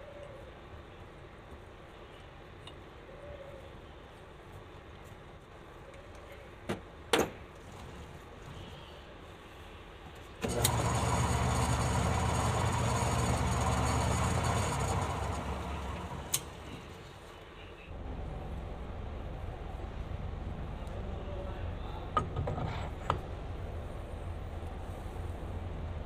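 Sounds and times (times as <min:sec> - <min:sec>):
electric motor humming: 0:10.4 - 0:17.2.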